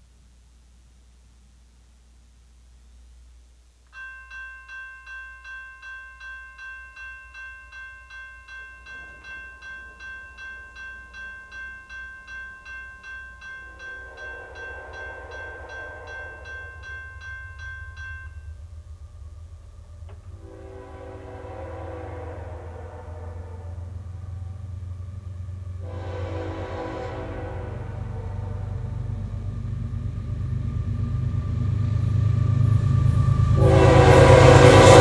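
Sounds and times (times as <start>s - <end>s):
crossing warning bell ringing: 3.9s - 35.0s
diesel locomotive rumble: 13.2s - 35.0s.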